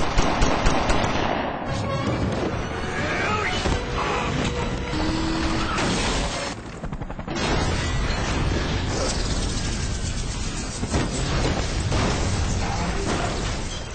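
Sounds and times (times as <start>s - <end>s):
dramatic music: 1.3s - 13.9s
crash and boom effects: 7.3s - 13.9s.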